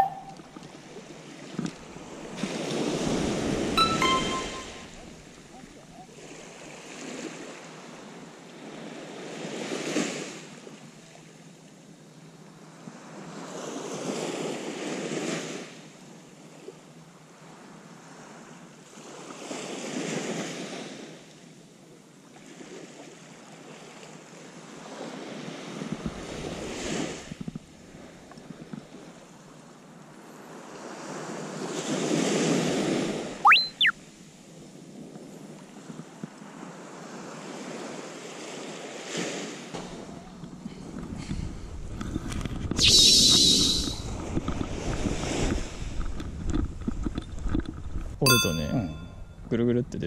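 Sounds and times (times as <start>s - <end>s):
small waves breaking on sand: 0.6s - 3.8s, 5.6s - 33.4s, 34.4s - 47.5s.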